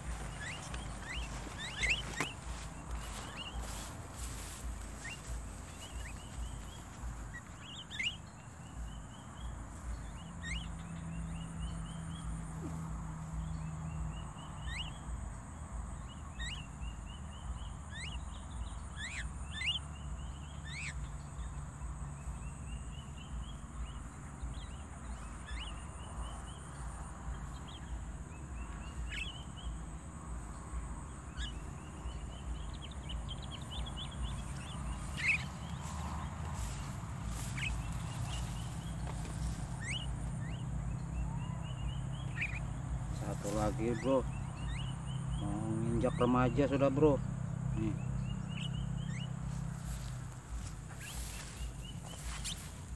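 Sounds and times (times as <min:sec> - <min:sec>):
mynas calling and whistling: 0:00.0 - 0:03.9, 0:34.3 - 0:35.8, 0:41.2 - 0:44.9.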